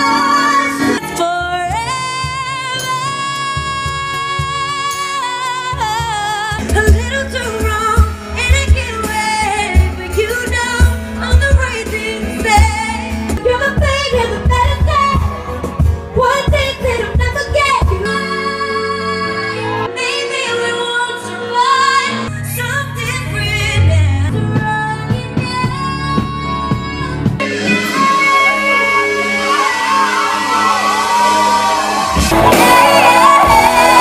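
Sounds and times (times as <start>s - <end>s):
band playing: 0.0s - 34.0s
woman singing pop live: 0.0s - 34.0s
bass and beat: 31.7s - 34.0s.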